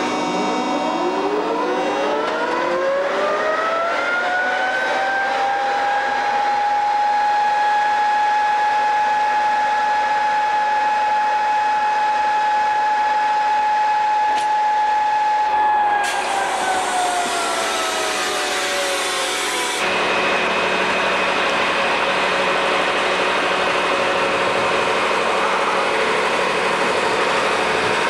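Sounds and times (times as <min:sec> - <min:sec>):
electric locomotive whining: 0:00.0 - 0:28.0.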